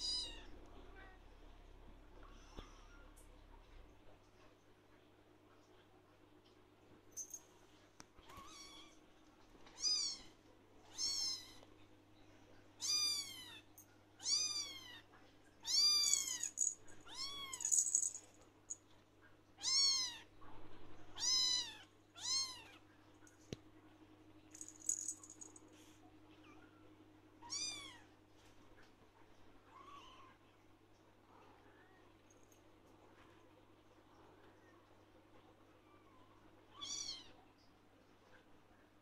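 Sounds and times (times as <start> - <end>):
kitten meowing: 10.9 - 11.6, 19.6 - 20.2.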